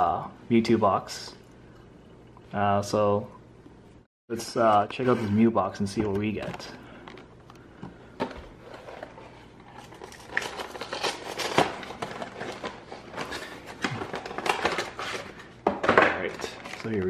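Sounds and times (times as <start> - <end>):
cardboard and plastic crinkling: 8.2 - 15.6, 16.2 - 17.0.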